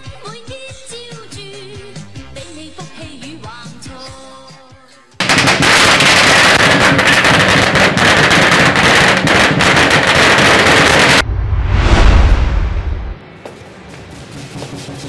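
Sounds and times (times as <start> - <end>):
firecrackers crackling: 5.2 - 11.2.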